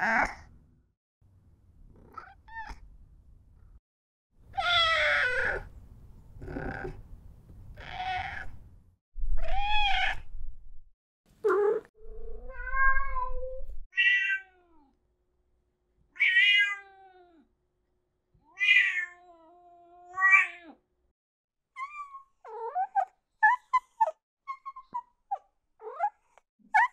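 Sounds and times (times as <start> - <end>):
cats meowing: 7.8 - 8.5, 9.4 - 10.2.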